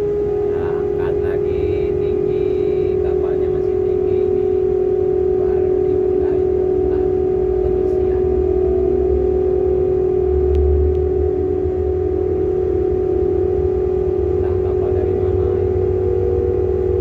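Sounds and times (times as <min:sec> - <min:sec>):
crane machinery humming: 0:00.0 - 0:17.0.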